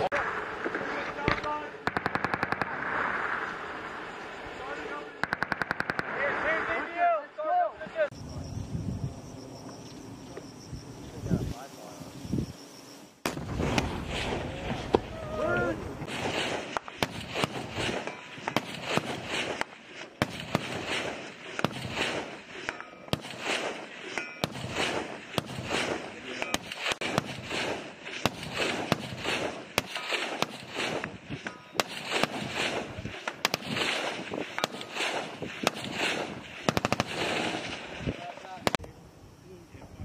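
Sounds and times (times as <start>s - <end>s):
rifle gunshots: 0.0s - 4.2s, 5.0s - 6.9s, 13.2s - 15.1s, 16.0s - 38.8s.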